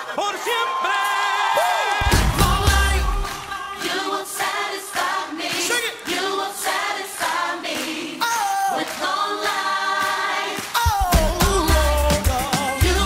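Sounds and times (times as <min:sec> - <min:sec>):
choir singing: 0:02.0 - 0:12.0.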